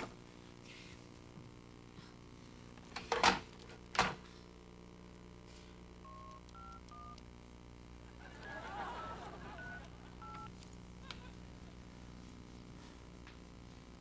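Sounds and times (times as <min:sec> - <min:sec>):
touch-tone dialing beeps: 0:06.0 - 0:07.2, 0:09.5 - 0:10.5.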